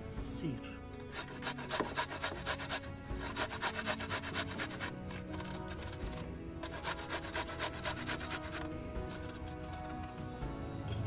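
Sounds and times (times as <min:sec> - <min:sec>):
garlic rasping on a metal grater: 0:01.1 - 0:09.8.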